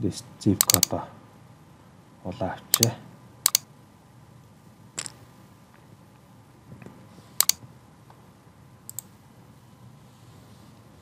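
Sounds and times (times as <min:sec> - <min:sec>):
low room hiss: 0:00.0 - 0:11.0
computer mouse and keyboard clicks: 0:00.6 - 0:01.0, 0:07.4 - 0:07.6.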